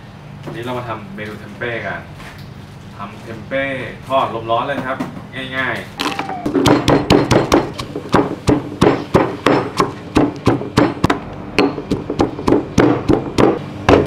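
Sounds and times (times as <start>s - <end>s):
stone pestle pounding in mortar: 6.5s - 14.0s.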